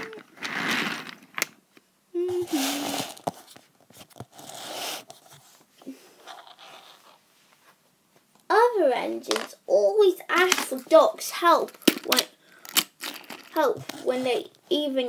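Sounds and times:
person humming: 0.0s - 0.2s, 2.1s - 3.1s.

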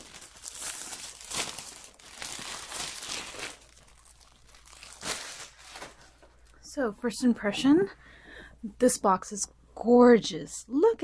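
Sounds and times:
plastic bag crinkling: 0.0s - 6.6s.

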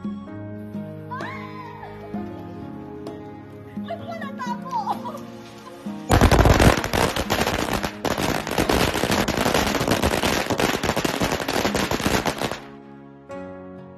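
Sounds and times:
firecrackers cracking: 6.1s - 12.8s.

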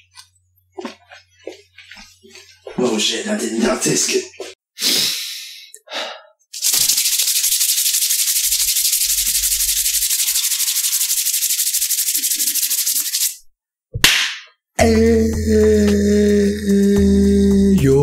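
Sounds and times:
short breath: 4.8s - 6.4s
palms rubbing together: 6.6s - 13.4s
music: 14.8s - 18.0s.

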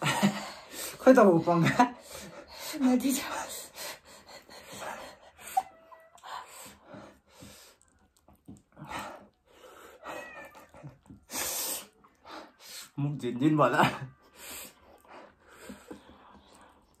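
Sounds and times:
squeaky whimpers: 5.4s - 6.2s
person breathing hard and hissing: 11.3s - 13.0s.

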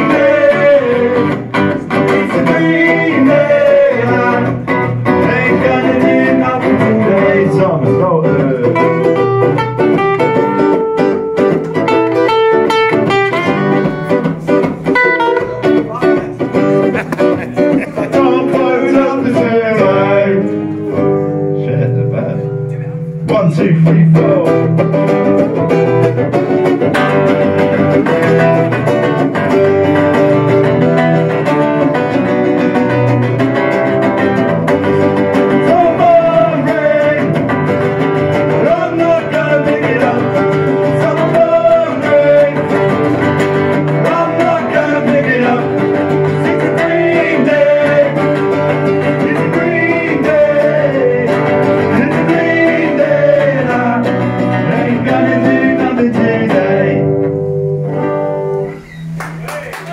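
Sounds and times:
man singing lead vocal: 0.0s - 9.2s, 17.1s - 20.8s, 23.2s - 25.1s, 35.5s - 37.6s, 38.3s - 43.1s, 43.9s - 57.2s
two guitars strummed: 0.0s - 59.9s.

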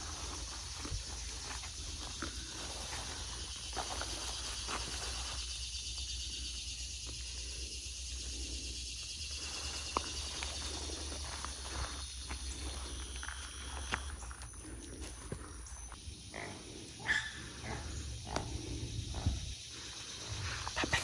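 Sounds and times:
footsteps on sand and dry vegetation: 0.0s - 5.8s, 9.1s - 16.0s
high insect chorus: 0.0s - 21.0s.

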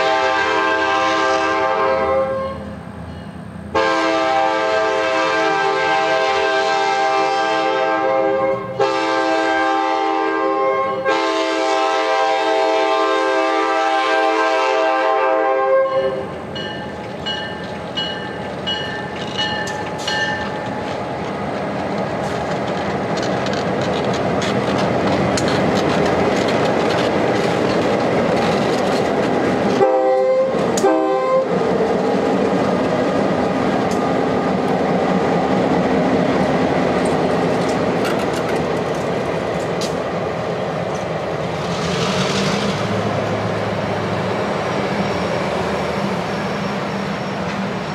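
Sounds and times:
locomotive air horn blasts: 0.0s - 2.7s, 3.7s - 16.3s, 29.7s - 31.6s
train engine and wheel rumble: 0.0s - 47.9s
train bell dinging: 3.0s - 3.6s, 16.0s - 21.0s
wheels clacking over rail joints: 16.2s - 29.9s, 30.5s - 44.4s.

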